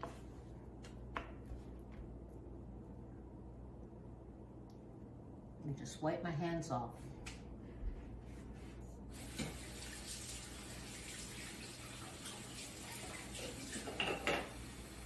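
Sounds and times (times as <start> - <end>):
tap water running: 9.1 - 15.0.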